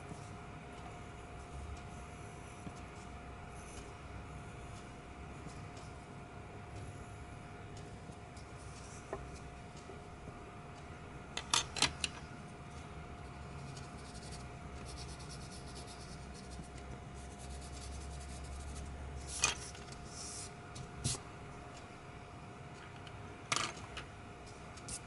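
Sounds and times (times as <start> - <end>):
pen scratching on paper: 13.6 - 16.7, 17.4 - 18.8.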